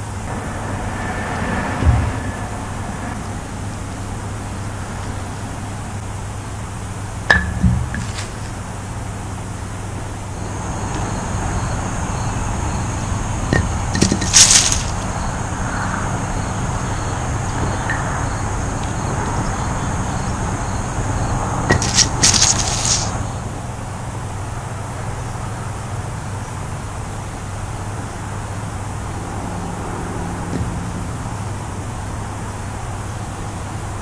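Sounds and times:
wooden batons clacking on blocks: 7.3 - 8.5, 13.5 - 15.2, 21.7 - 23.2.

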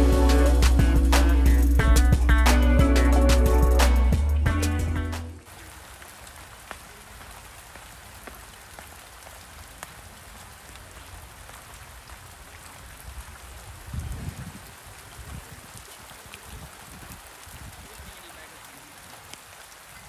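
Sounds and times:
steady rain falling: 0.0 - 20.0
rain drop ticks: 5.4 - 20.0.

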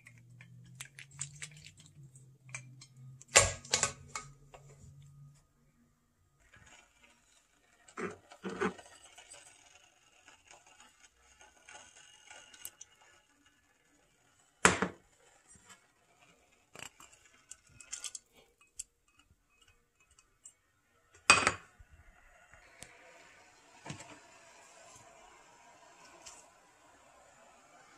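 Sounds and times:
cookware and utensils clinking: 0.0 - 4.5, 6.5 - 11.0, 21.2 - 21.8.

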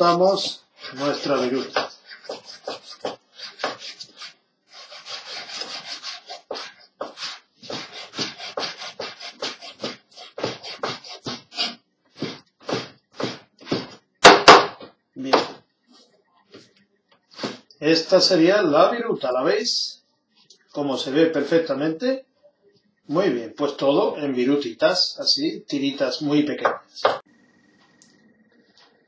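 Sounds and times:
knife scraping on board: 0.0 - 14.0.

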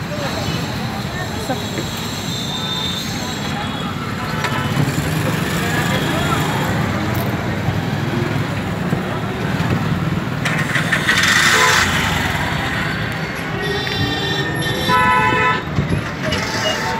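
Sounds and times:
crowd chatter: 0.0 - 16.9
motorcycle engines: 0.0 - 16.9
vehicle horn honking: 11.3 - 16.9.

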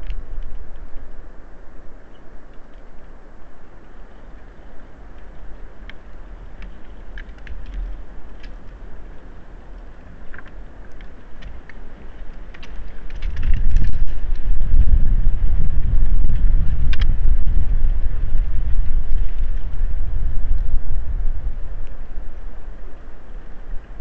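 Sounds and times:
sharp clicks and crackles: 0.0 - 1.1, 2.1 - 3.0, 3.6 - 20.8
wind rumbling on microphone: 0.0 - 24.0.

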